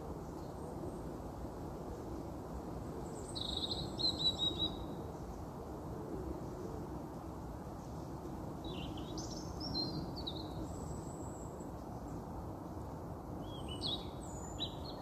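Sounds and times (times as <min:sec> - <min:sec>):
songbird chirping: 0:03.1 - 0:05.0, 0:13.4 - 0:15.0.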